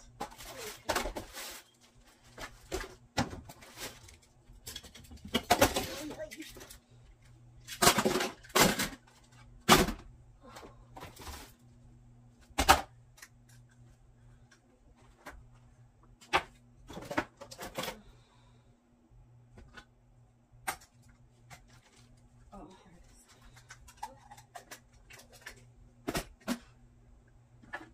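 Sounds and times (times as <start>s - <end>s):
toys clattering into plastic bin: 4.6s - 6.7s, 7.6s - 10.0s.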